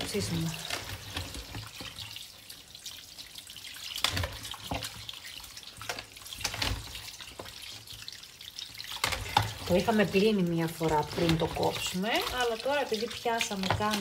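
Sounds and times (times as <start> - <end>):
tap water running: 0.0 - 14.0
hands splashing meat in water: 3.1 - 14.0.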